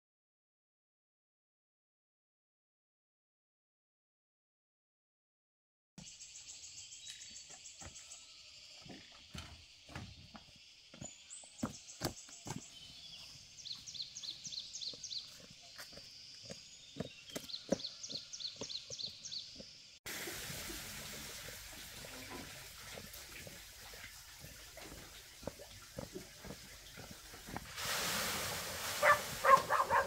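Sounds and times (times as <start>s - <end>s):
steady hiss: 27.3s - 30.0s.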